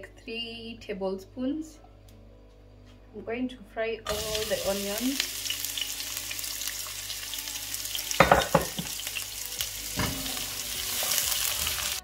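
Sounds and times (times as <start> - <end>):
onions sizzling in hot oil: 4.1 - 12.0
spatula knocking on pot: 8.2 - 8.9.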